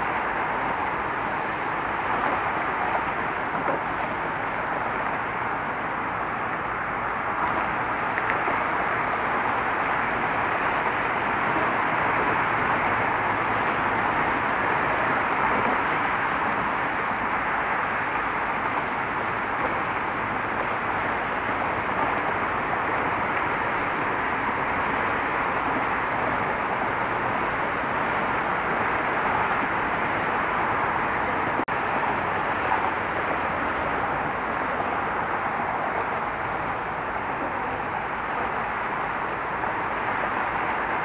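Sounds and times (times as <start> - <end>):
road traffic noise: 0.0 - 41.0.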